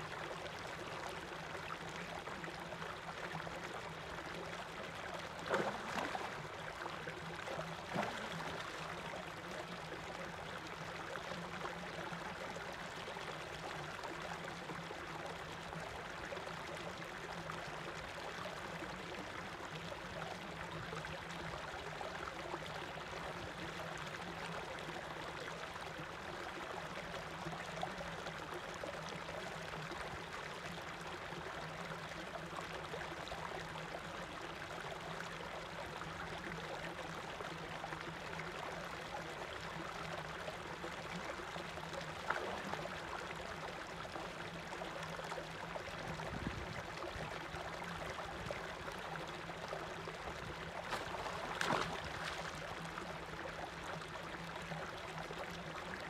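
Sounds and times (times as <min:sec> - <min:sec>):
water gushing into pond: 0:00.1 - 0:56.0
fish splashing: 0:50.8 - 0:52.7.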